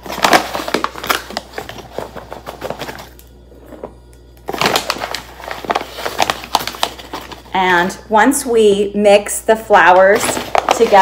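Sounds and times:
paper flour bag rustling: 0.0s - 3.9s, 4.5s - 8.0s, 9.8s - 11.0s.

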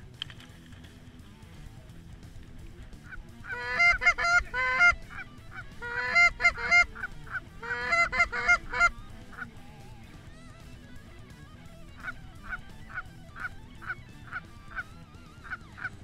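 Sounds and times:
goose honking: 3.1s - 9.6s, 11.6s - 16.0s.

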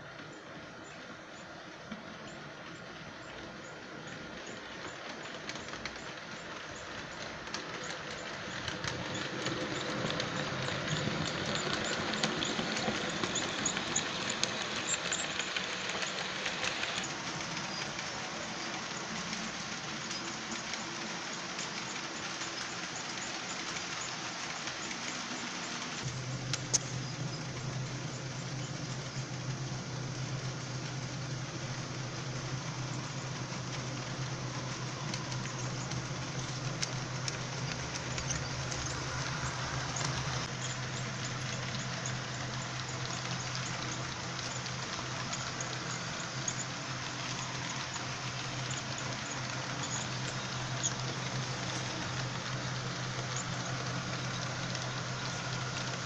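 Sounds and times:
model steam locomotive sound effects: 0.0s - 56.0s
motor and wheel noise on track: 0.0s - 56.0s
steady low hum: 26.0s - 56.0s.

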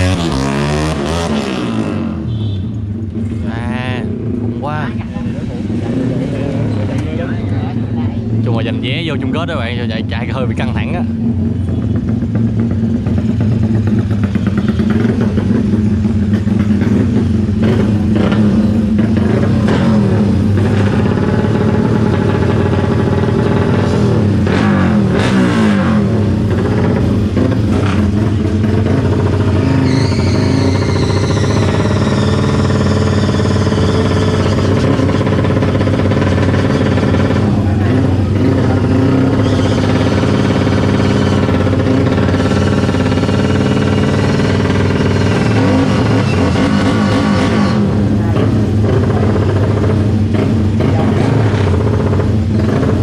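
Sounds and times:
motorcycle engines revving: 0.0s - 53.0s.

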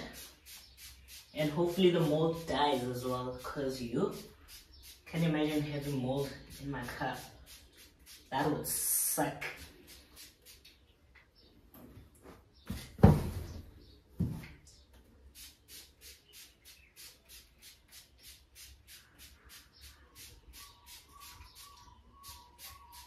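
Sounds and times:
spray bottle hissing: 0.0s - 8.6s, 9.6s - 10.8s, 15.3s - 23.0s.

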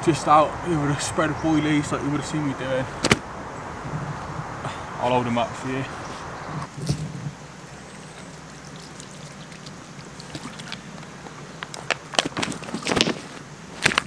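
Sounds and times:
water pouring from bottle: 6.7s - 11.2s
plastic bottle crackling: 6.7s - 14.0s.

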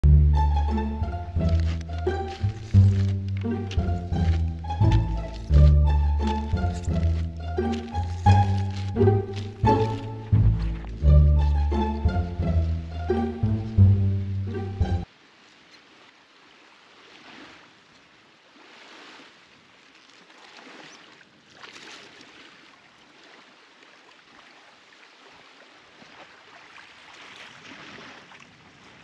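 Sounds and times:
small waves lapping on shore: 14.5s - 29.0s.

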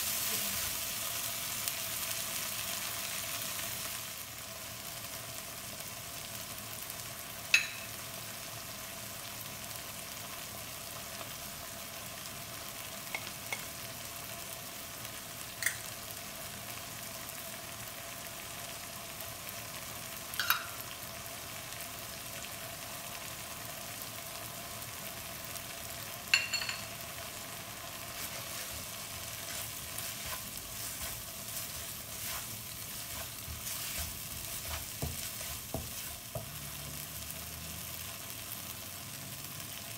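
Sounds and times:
vegetables sizzling in a wok: 0.0s - 39.9s
spatula scraping and stirring: 28.0s - 37.3s.

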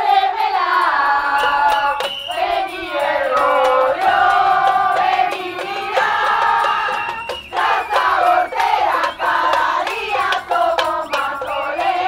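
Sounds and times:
crowd chanting in unison: 0.0s - 12.0s.

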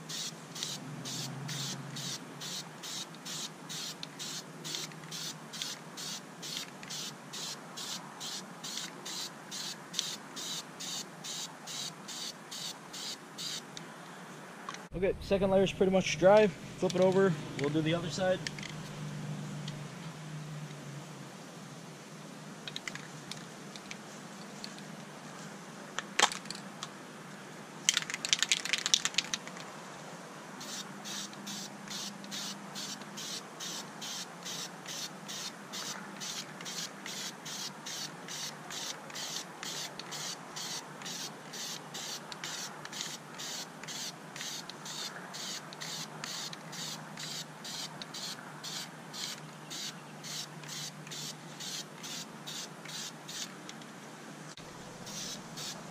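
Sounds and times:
spray paint hissing: 0.0s - 13.7s, 30.6s - 53.5s, 55.0s - 55.9s
spray can rattling: 0.1s - 13.6s, 27.9s - 29.5s, 30.6s - 53.5s, 55.1s - 55.8s.

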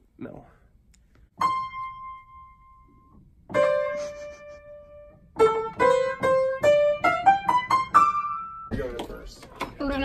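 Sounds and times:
piano notes: 1.4s - 9.2s.

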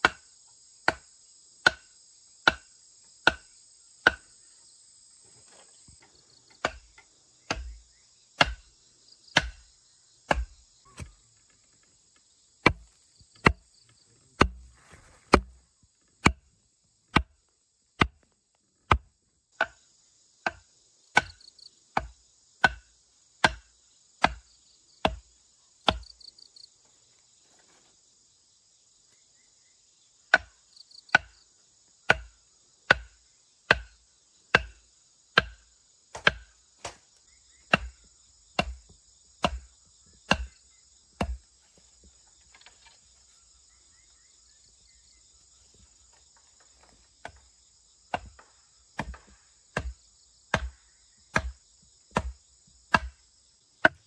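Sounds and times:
insects chirring: 0.0s - 54.0s
wooden mallet knocking on bamboo: 40.3s - 40.5s, 41.2s - 41.4s.

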